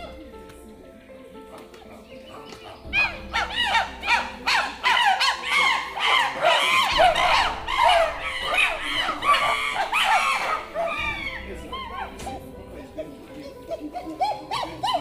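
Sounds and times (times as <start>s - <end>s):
chimpanzees hooting and screaming: 1.4s - 15.0s.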